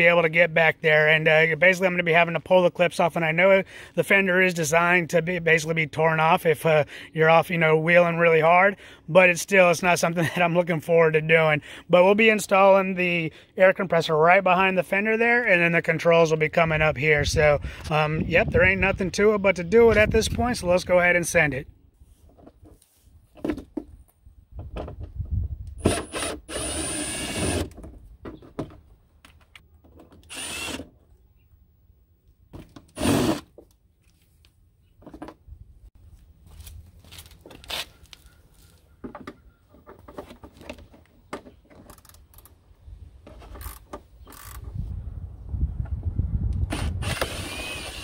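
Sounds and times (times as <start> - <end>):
cordless power driver running: 25.8 - 27.7, 30.3 - 30.8, 46.6 - 48.0.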